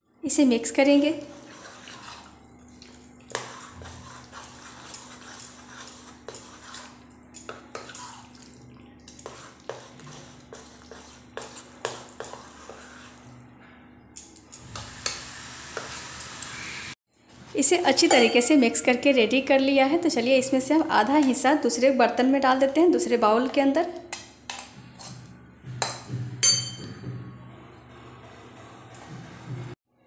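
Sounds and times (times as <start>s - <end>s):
spoon stirring thick batter: 0.7s - 13.3s
spoon clinking against pan: 17.9s - 19.0s, 25.8s - 26.9s.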